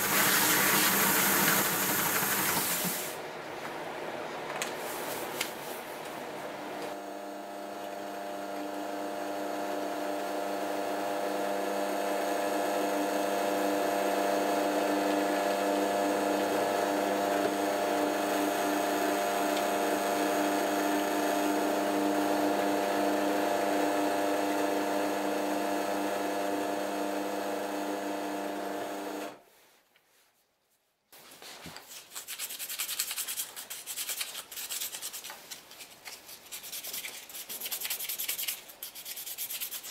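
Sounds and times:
drill press motor running: 6.9s - 29.4s
sandpaper rubbing wood: 31.9s - 39.9s.

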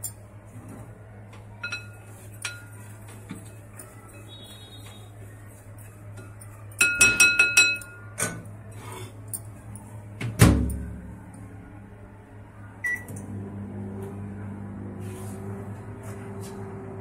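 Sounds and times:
glass clink: 1.6s - 2.8s, 6.8s - 8.1s
spoon tapping a glass bowl: 6.8s - 8.0s.

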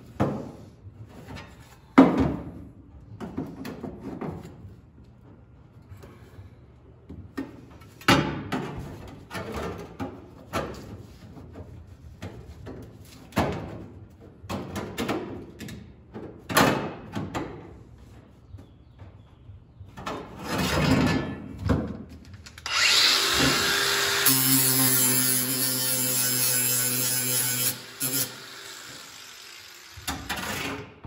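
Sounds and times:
angle grinder starting: 22.6s - 30.3s.

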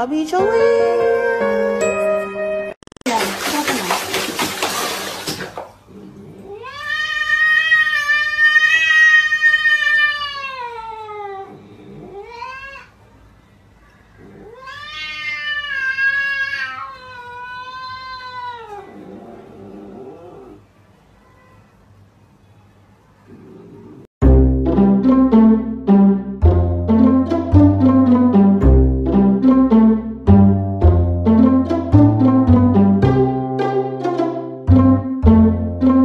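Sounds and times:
angry cat yowling: 6.5s - 12.9s, 14.2s - 20.6s.

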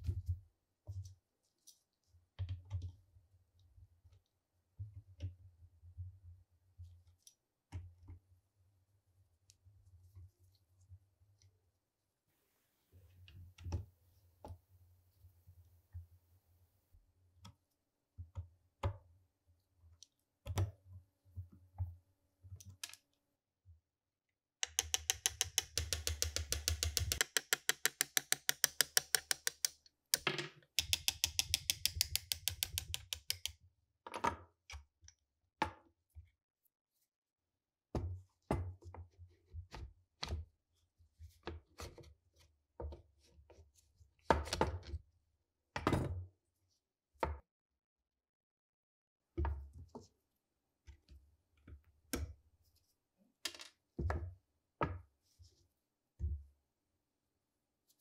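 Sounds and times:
rifle parts knocking and clicking: 24.6s - 33.5s.

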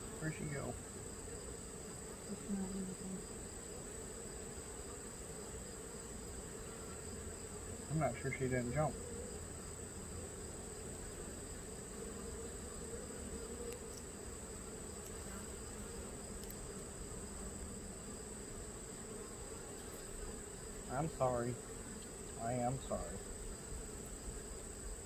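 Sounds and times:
bees humming: 0.0s - 25.0s
faint ticks: 13.6s - 14.1s, 16.4s - 16.6s.

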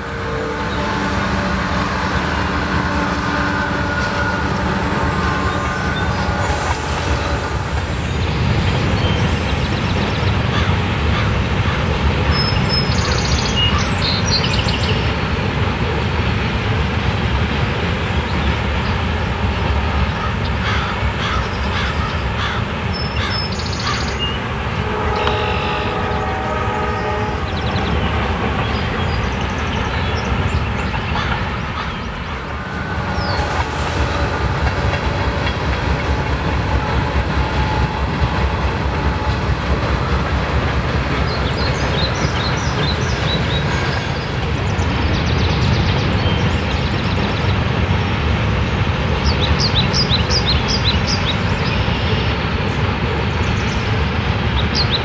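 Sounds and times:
steady tones: 0.0s - 10.2s, 24.4s - 42.3s
train wheels rumbling on rails: 0.0s - 55.0s.

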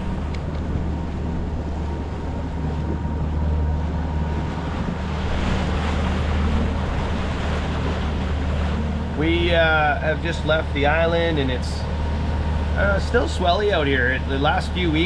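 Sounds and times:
wind on microphone: 0.0s - 10.3s
boat engine running: 0.0s - 15.0s
water rushing along hull: 0.0s - 15.0s.

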